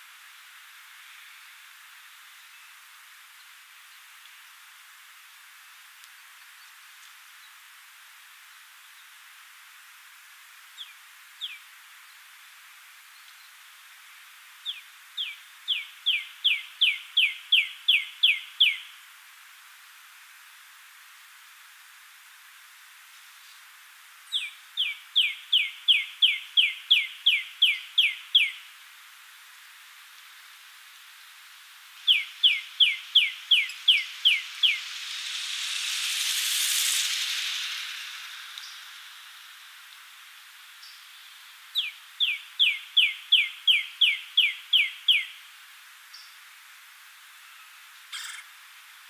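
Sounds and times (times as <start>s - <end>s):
woodpecker calling: 32.0s - 34.8s, 48.1s - 48.5s.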